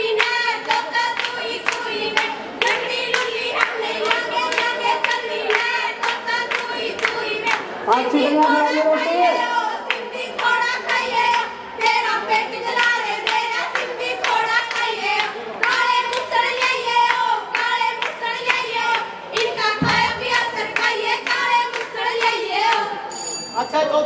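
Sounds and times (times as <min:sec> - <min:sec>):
hands clapping in steady beat: 0:00.0 - 0:07.8, 0:09.8 - 0:22.9
women singing folk song: 0:00.0 - 0:23.1
dull thump: 0:19.8 - 0:20.2.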